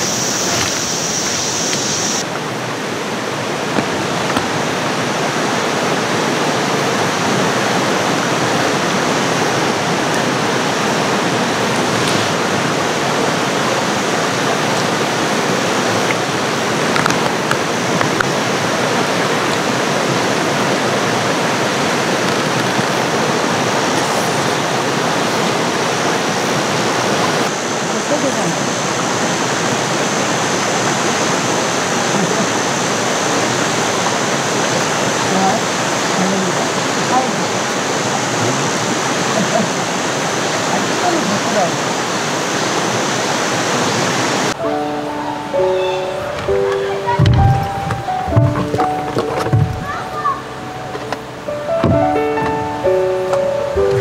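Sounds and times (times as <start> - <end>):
high hiss: 0.0 - 2.9
creek water rushing over rocks: 0.0 - 54.0.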